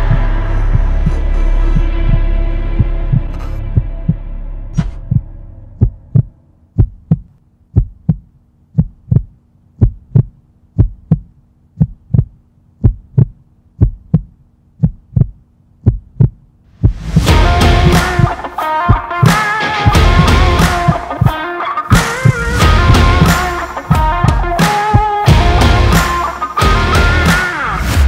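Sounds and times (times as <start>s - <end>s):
heartbeat thumps: 0.0s - 4.2s, 4.8s - 27.2s
faint steady hum: 0.0s - 17.1s
rock music with guitar: 17.2s - 28.0s.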